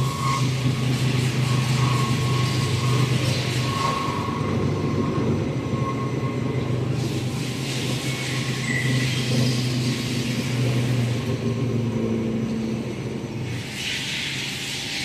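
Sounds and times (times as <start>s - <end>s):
knife grinder machine hum: 0.0s - 13.8s
faint machine whine: 0.0s - 15.0s.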